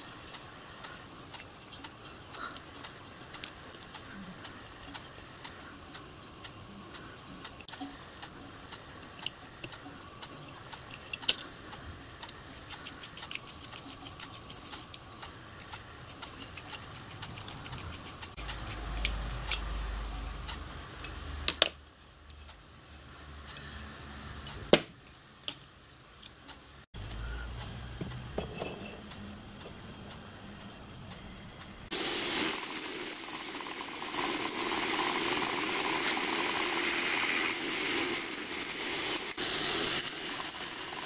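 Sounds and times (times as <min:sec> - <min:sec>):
small steel parts clicking: 0:06.9 - 0:23.7.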